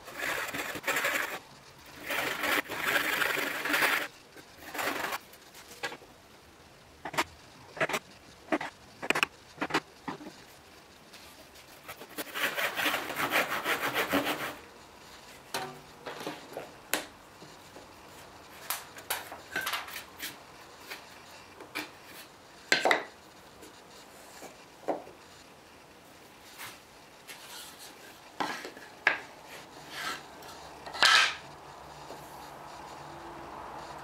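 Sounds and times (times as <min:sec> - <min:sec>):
hand saw cutting wood: 0:12.1 - 0:14.6.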